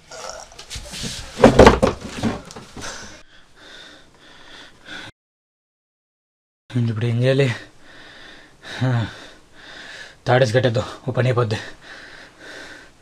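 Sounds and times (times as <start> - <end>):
knocks: 1.4 - 2.7
men breathing and grunting: 2.2 - 5.1.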